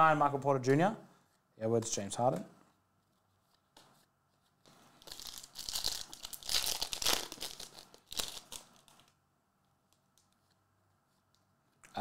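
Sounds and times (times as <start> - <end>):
foil wrapper crinkling: 5.0 - 9.1.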